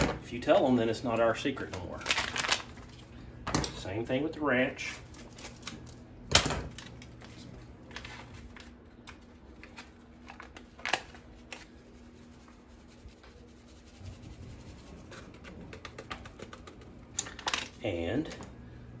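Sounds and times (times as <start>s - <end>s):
faint steady hum: 0.0s - 19.0s
paper rustling: 7.0s - 12.6s.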